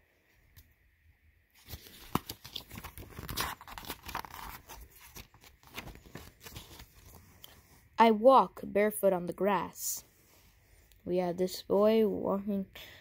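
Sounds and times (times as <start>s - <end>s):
paper pages turning: 1.6s - 7.7s.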